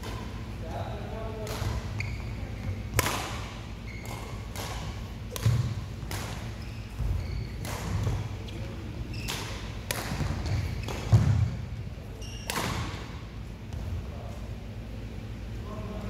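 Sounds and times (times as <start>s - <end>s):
racket hitting shuttlecock: 1.4s - 2.0s, 2.9s - 8.3s, 9.2s - 11.6s, 12.4s - 13.1s.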